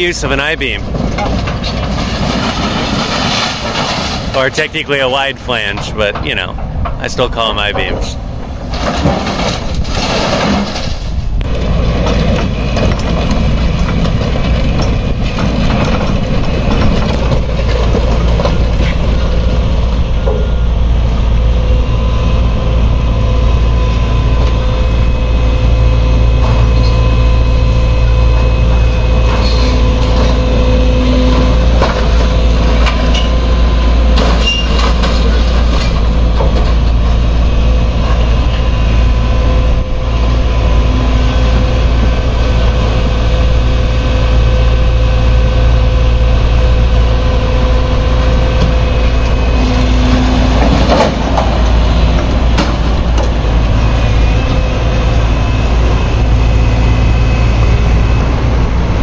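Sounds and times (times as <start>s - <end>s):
excavator diesel engine running: 0.0s - 59.0s
scrap metal clanking: 0.9s - 4.5s, 7.8s - 19.2s, 34.1s - 37.2s, 48.6s - 53.6s.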